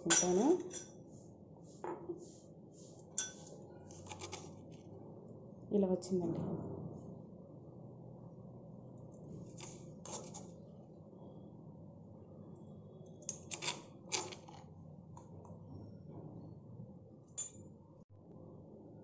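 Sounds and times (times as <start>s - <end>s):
spoon scraping stone mortar: 2.9s - 4.7s, 9.5s - 10.6s.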